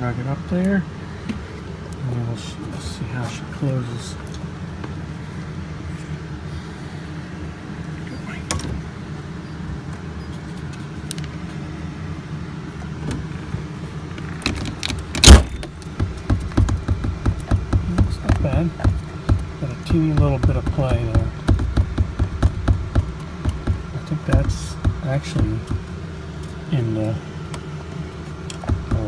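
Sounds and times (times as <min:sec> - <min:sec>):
steady low hum: 0:00.0 - 0:29.0
bus door slamming shut: 0:14.5 - 0:15.7.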